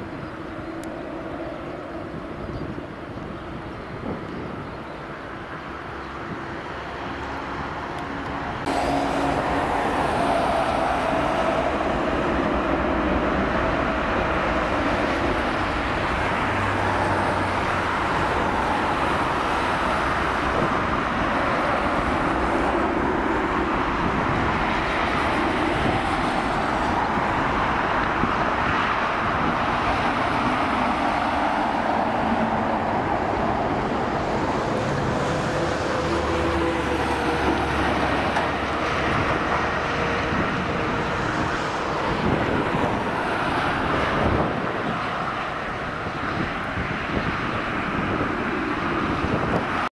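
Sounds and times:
jet engine roar: 0.0 - 49.9.

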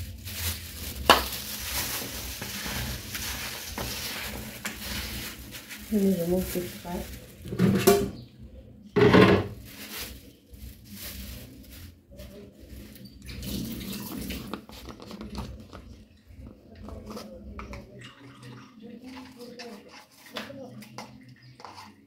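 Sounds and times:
plastic glove crinkling: 0.0 - 7.6, 9.4 - 16.1
faint handling noise: 9.2 - 13.4.

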